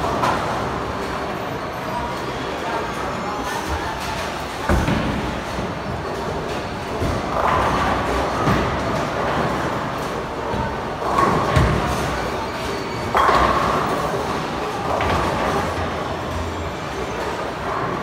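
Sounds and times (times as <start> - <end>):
bowling balls rolling: 3.7 - 18.0.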